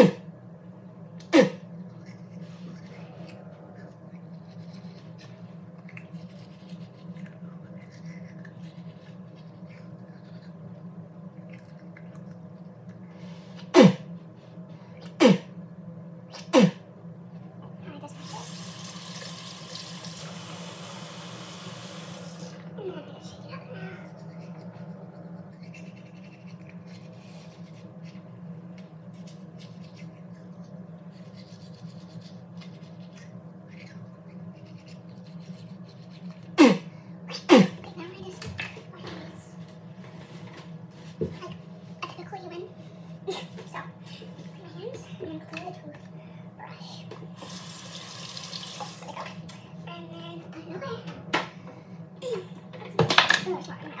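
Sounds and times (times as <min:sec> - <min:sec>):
steady low hum: 0:00.0 - 0:54.0
faint toothbrush scrubbing: 0:02.0 - 0:10.8, 0:23.5 - 0:36.6.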